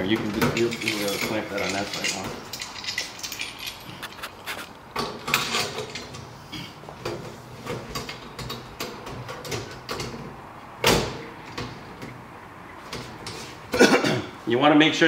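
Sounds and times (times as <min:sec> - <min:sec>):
metal clamp clicking and clinking: 0:00.6 - 0:04.4.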